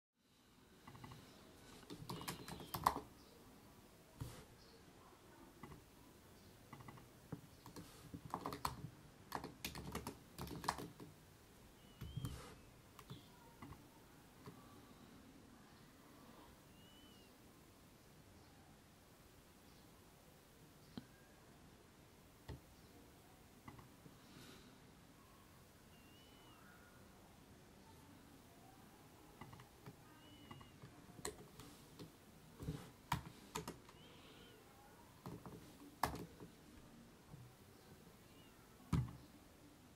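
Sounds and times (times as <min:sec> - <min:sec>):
keyboard key presses: 0:01.8 - 0:03.1, 0:06.7 - 0:11.1, 0:29.4 - 0:34.0, 0:35.2 - 0:36.5.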